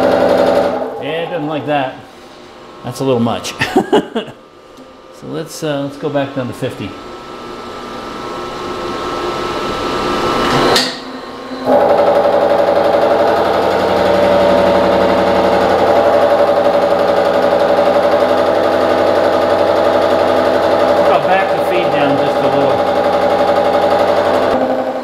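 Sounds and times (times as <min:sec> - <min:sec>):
milling machine cutting steel: 0:07.2 - 0:24.7.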